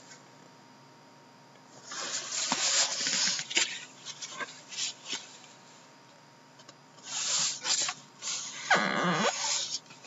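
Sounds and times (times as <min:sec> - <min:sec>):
cardboard scraping rub: 0:07.0 - 0:09.8.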